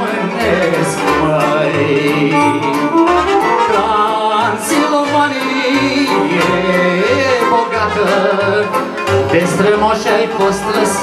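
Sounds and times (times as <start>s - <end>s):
violin: 0.0s - 8.8s
accordion: 0.0s - 11.0s
electronic keyboard: 2.1s - 4.7s.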